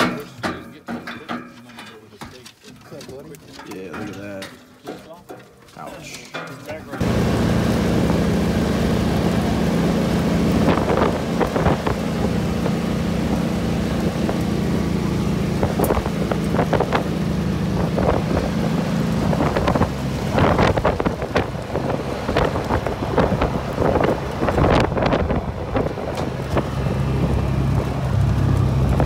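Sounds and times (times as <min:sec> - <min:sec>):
rattles and knocks from bumps: 0:00.0 - 0:07.2
utility vehicle engine humming: 0:06.9 - 0:29.0
wind buffeting microphone: 0:07.1 - 0:29.0.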